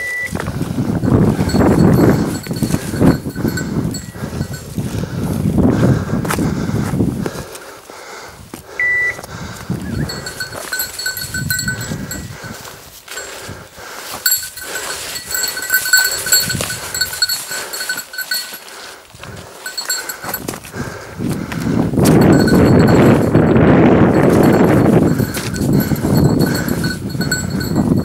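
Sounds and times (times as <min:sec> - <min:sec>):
small bell ringing: 0:01.0 - 0:04.8, 0:10.0 - 0:13.5, 0:14.1 - 0:18.7, 0:19.6 - 0:20.5, 0:22.0 - 0:28.0
footsteps: 0:10.0 - 0:23.4, 0:24.1 - 0:27.8
rustle of undergrowth: 0:12.6 - 0:20.7.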